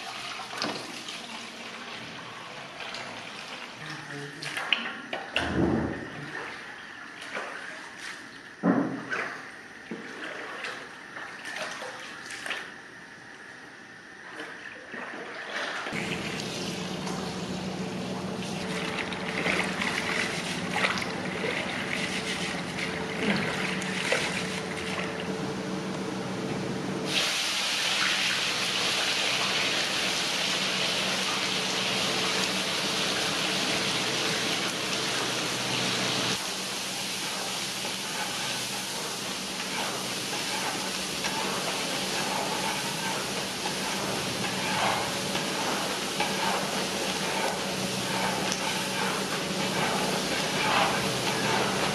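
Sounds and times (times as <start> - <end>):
steady hum: 16.0 - 27.1
onions sizzling in hot oil: 27.1 - 51.9.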